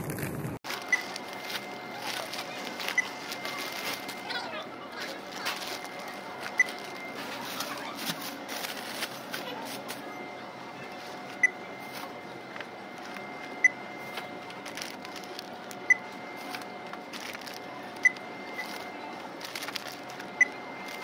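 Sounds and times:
electrical hum: 0:00.0 - 0:21.0.

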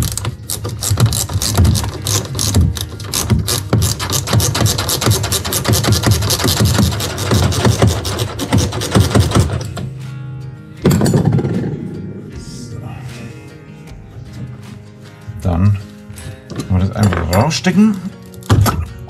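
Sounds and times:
ratcheting spanner clicking: 0:00.0 - 0:09.8.

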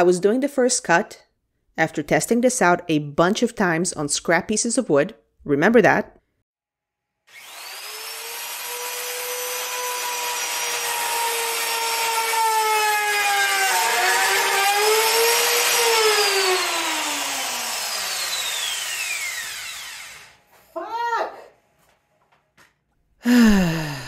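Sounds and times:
router cutting wood: 0:07.3 - 0:20.5
router motor whine: 0:07.3 - 0:20.5.

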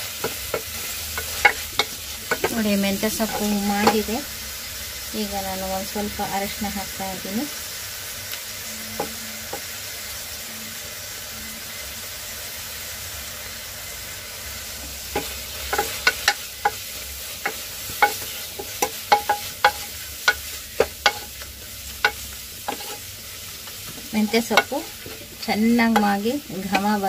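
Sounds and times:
vegetables sizzling in oil: 0:00.0 - 0:27.0
spatula tapping metal pot: 0:00.2 - 0:04.2, 0:17.4 - 0:23.0, 0:23.9 - 0:27.0.

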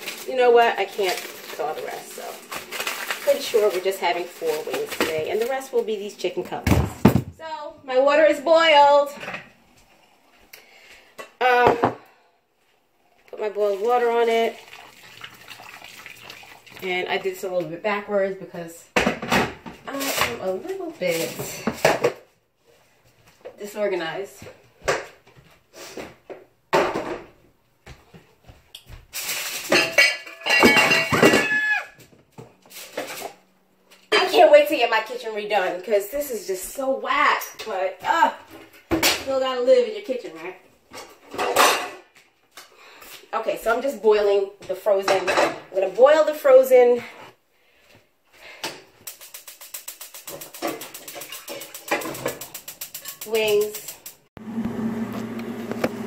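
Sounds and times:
metal pots clanking and scraping: 0:29.3 - 0:31.8, 0:40.9 - 0:42.1, 0:50.0 - 0:54.3.

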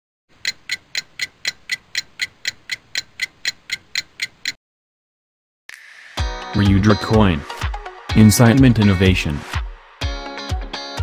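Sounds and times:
countdown ticking: 0:00.3 - 0:04.6.

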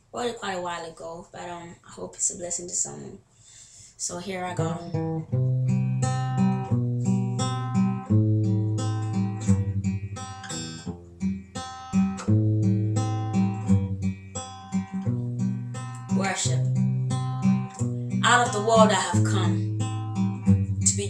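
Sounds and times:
acoustic guitar strumming chords: 0:04.5 - 0:21.0.

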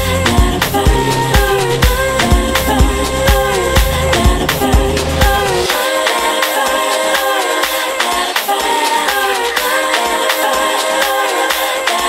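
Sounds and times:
kick drum and bass: 0:00.0 - 0:05.7
hi-hat percussion: 0:00.0 - 0:12.0
melodic synth parts: 0:00.3 - 0:05.8.

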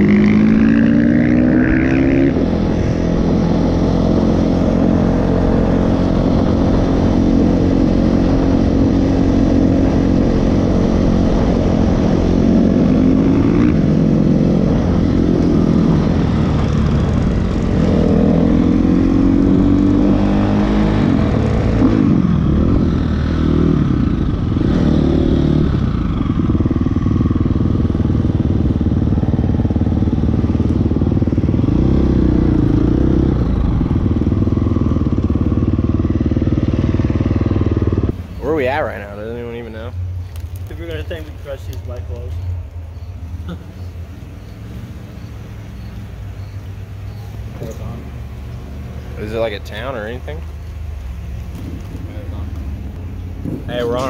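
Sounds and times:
dirt bike engine running: 0:00.0 - 0:42.5.

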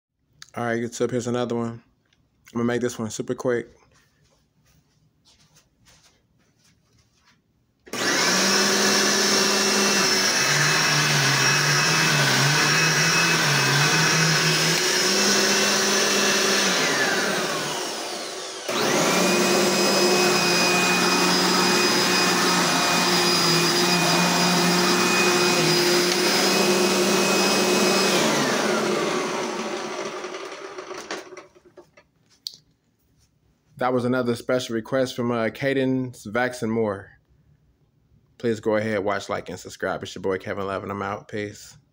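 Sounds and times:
vacuum cleaner running: 0:07.9 - 0:31.7.

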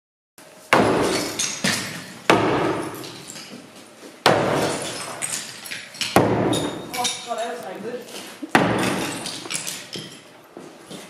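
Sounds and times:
sledgehammer striking wall: 0:00.7 - 0:03.3, 0:04.2 - 0:07.0, 0:08.5 - 0:09.8
rattle of falling rubble: 0:04.5 - 0:07.4, 0:08.7 - 0:10.3.

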